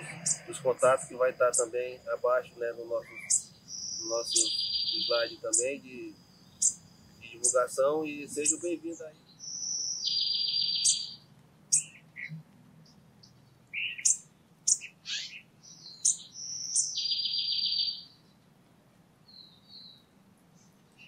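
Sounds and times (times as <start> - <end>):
short high bird chirps: 0.0 - 0.5, 3.0 - 5.8, 6.4 - 7.6, 8.3 - 12.4, 13.7 - 18.2
bird buzzy trill: 0.0 - 12.4, 13.8 - 18.1.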